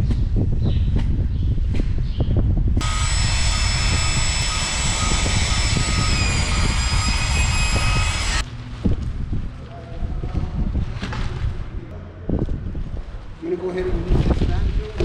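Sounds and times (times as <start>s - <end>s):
low wind rumble: 0.0s - 15.0s
paddle mixer drill motor whine: 2.8s - 8.4s.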